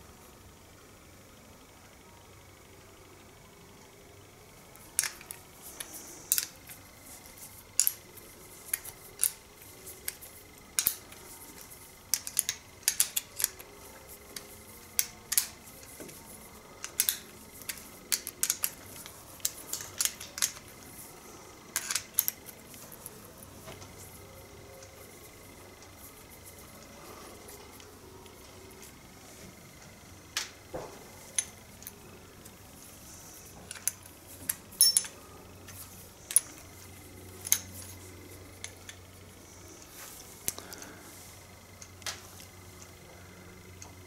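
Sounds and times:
spanner clicking on metal bolts: 33.7 - 35.2.

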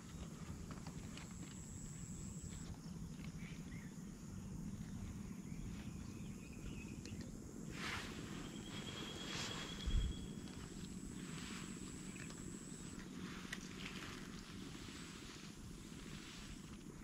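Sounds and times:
high-pitched insect tone: 1.1 - 2.7, 7.8 - 15.5
short chirps: 8.4 - 10.5.

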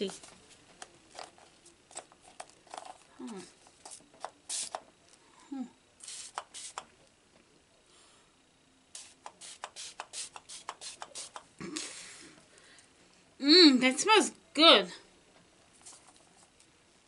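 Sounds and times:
mist sprayer hissing: 4.5 - 4.8, 6.0 - 6.8, 9.0 - 11.4
sprayer clicks: 9.0 - 11.5.

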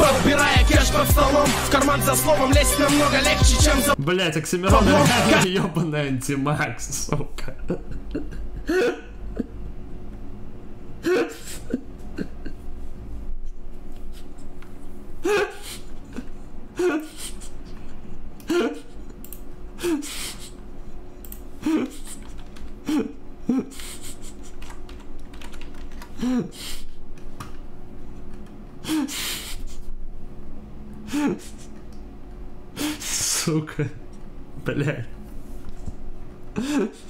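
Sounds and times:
man laughing: 6.9 - 9.6, 11.0 - 12.7, 15.2 - 18.9, 31.1 - 31.6, 33.1 - 34.1, 36.5 - 37.0
keyboard typing: 22.1 - 22.8, 24.4 - 26.2.

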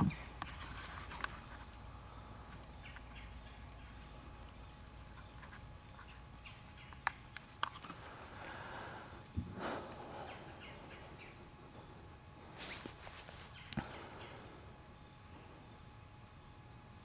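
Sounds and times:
brief rustle: 12.6 - 13.5.

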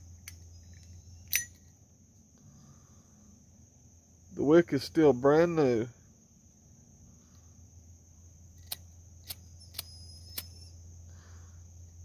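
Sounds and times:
insect trill: 0.0 - 12.0
lighter metallic clicks: 8.6 - 10.6.

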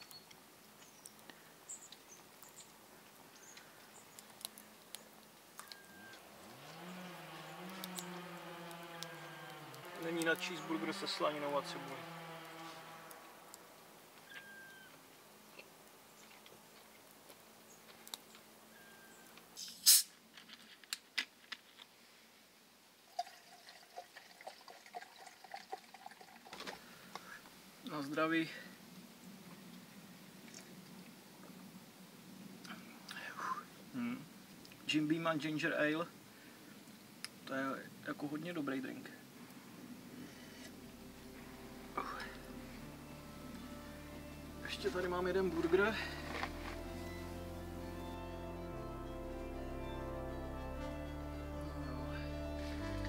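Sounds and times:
wood fire crackling: 0.0 - 21.9, 23.1 - 53.0
liquid gurgling and trickling: 23.1 - 26.9.

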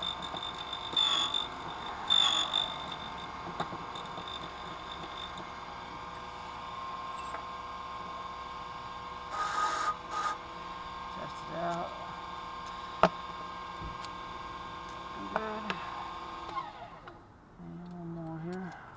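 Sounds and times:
key blank scraping on cutter: 0.0 - 6.2
machine motor running: 0.0 - 17.1.

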